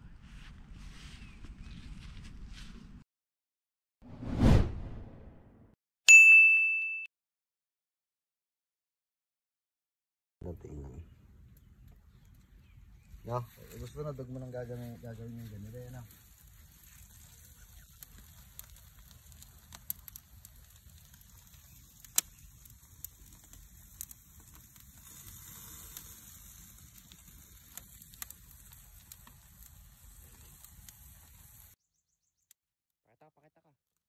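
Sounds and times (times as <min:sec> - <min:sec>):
cooking crackles and pops: 0:11.6 - 0:31.8
fish sizzling in a pan: 0:23.7 - 0:28.0.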